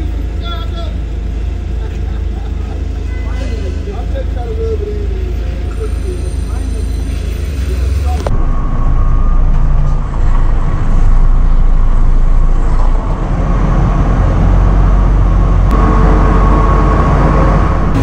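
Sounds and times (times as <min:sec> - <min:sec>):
diesel truck engine rumbling: 0:00.0 - 0:18.0.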